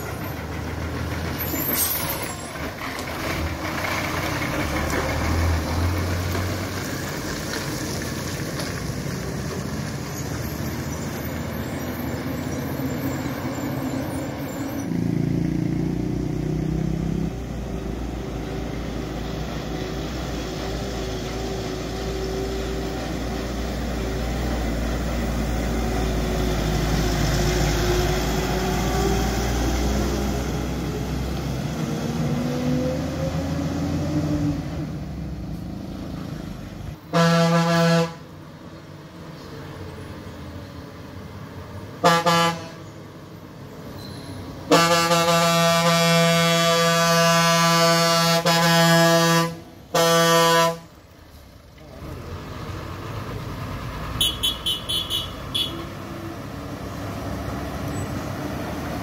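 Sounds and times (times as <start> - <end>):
truck diesel engine running hard: 0.0 - 43.8, 44.4 - 59.0
truck horn toots: 37.1 - 38.3, 42.0 - 42.9, 44.7 - 50.9, 54.2 - 56.0.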